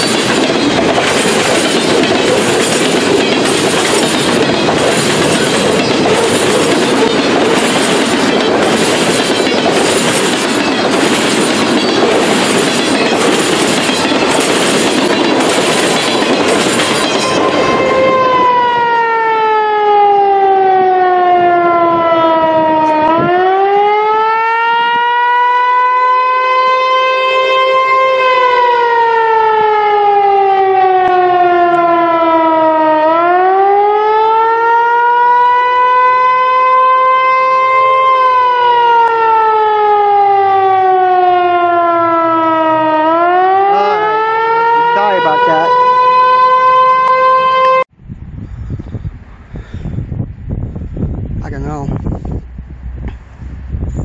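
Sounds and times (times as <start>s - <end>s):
wheels clacking over rail joints: 0.0s - 17.8s
freight train rumbling past: 0.0s - 23.7s, 48.4s - 54.0s
warning siren wailing: 0.0s - 47.9s.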